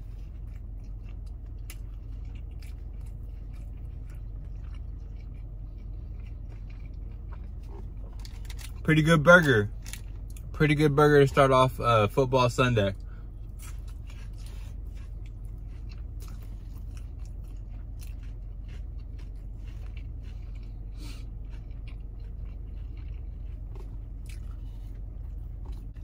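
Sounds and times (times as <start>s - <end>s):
person chewing with crunches: 0.0s - 26.0s
steady low hum: 0.0s - 26.0s.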